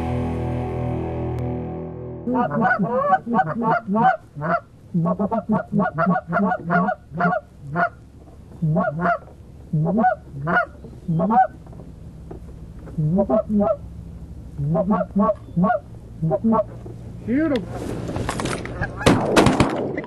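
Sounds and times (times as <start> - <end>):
goose honks: 2.3 - 8.0, 8.6 - 11.6, 12.9 - 13.9, 14.6 - 16.8.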